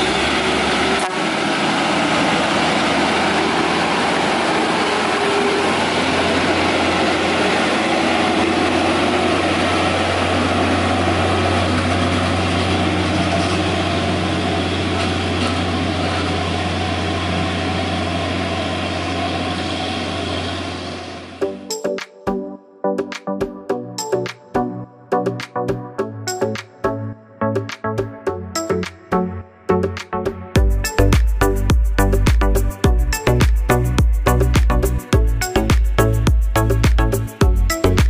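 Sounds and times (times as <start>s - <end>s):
truck diesel engine under load: 0.0s - 21.4s.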